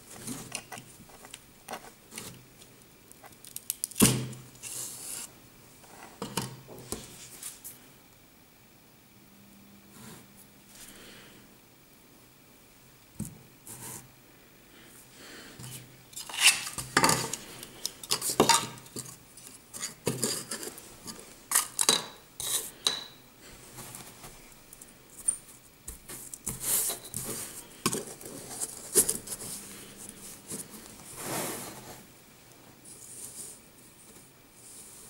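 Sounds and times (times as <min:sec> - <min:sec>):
plastic moulds clattering: 0:16.2 - 0:22.2.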